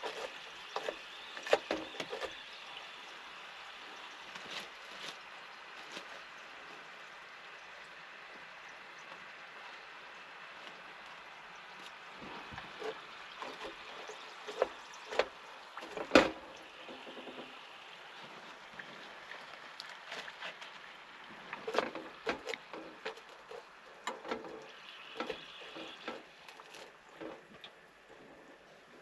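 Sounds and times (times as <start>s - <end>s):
wedges sizzling in hot oil: 0.0s - 6.0s, 11.6s - 19.6s, 20.2s - 27.4s.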